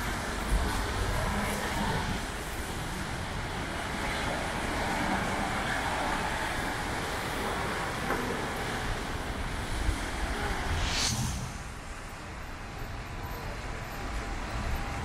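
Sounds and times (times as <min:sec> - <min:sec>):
heavy rain on street: 0:00.0 - 0:10.7
traffic on wet road: 0:00.0 - 0:15.0
sharp hiss: 0:10.4 - 0:12.4.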